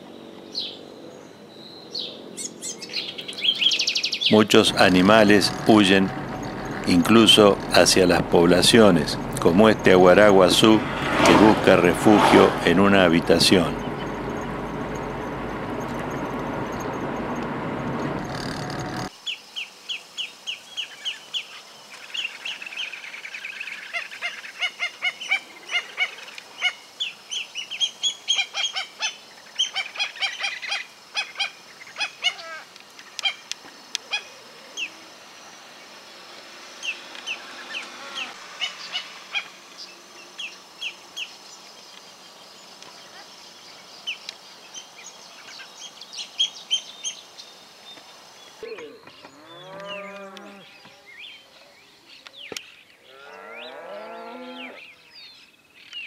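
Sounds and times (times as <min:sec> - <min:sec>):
waterbirds calling: 0:03.0 - 0:12.1
steady rushing noise: 0:04.4 - 0:14.9.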